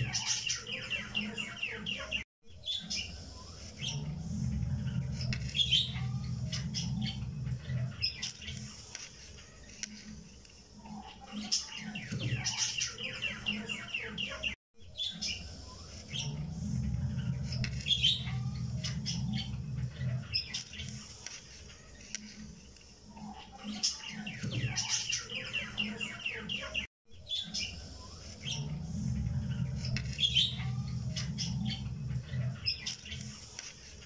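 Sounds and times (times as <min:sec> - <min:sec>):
birds chirping: 0:00.0 - 0:34.0
low steady hum: 0:03.0 - 0:08.0, 0:15.3 - 0:20.3, 0:27.6 - 0:32.8.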